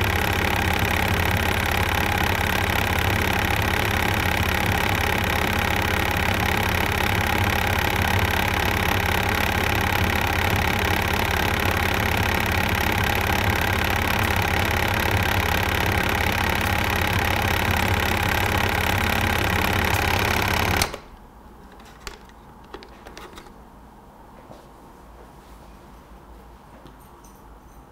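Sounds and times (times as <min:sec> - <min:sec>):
water flosser pump buzzing: 0:00.0 - 0:21.2.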